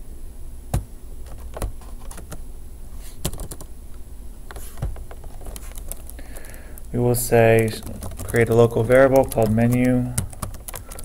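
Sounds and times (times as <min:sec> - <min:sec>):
keyboard keystrokes: 0:03.2 - 0:03.7, 0:04.5 - 0:11.0.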